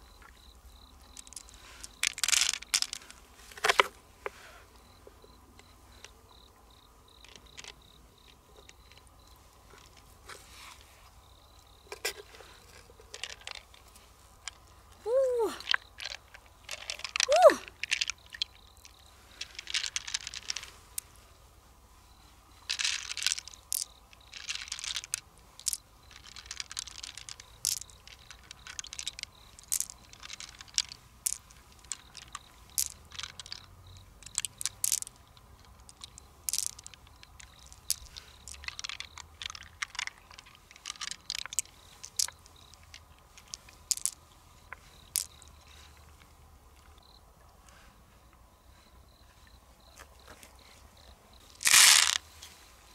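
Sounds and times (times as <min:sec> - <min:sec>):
pearls clicking against shell: 0:00.2 - 0:03.2, 0:11.9 - 0:21.1, 0:22.6 - 0:47.1, 0:51.5 - 0:52.2
person exclaiming: 0:15.0 - 0:15.7, 0:17.2 - 0:17.7
wet rustling of mussel flesh: 0:34.3 - 0:47.0.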